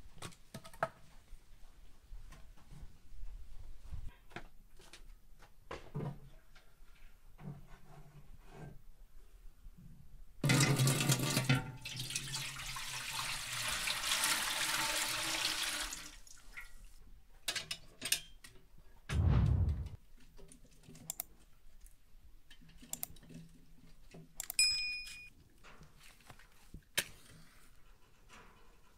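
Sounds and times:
heavy thump: 19.1s - 20.0s.

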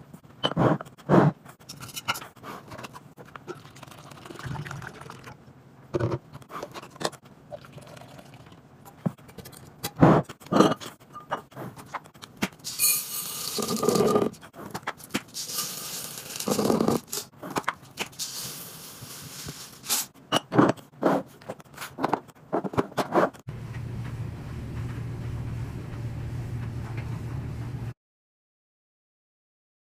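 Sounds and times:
liquid pouring into glass jar: 3.5s - 5.4s, 7.5s - 8.6s
beads pouring into glass jar: 12.7s - 14.0s, 15.4s - 17.1s, 18.2s - 20.0s
low hum: 23.5s - 28.0s.

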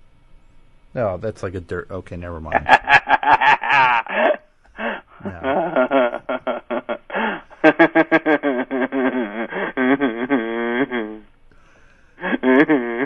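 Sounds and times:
man laughing over a telephone: 2.5s - 11.2s, 12.2s - 13.0s.

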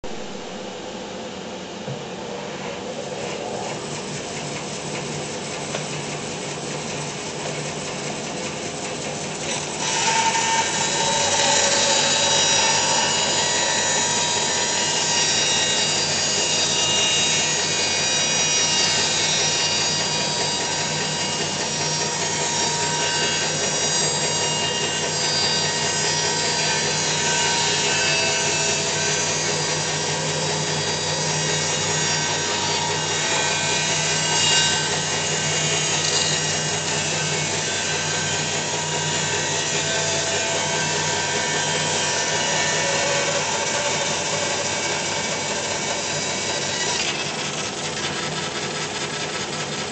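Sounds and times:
bandsaw cutting wood: 6.6s - 49.9s.

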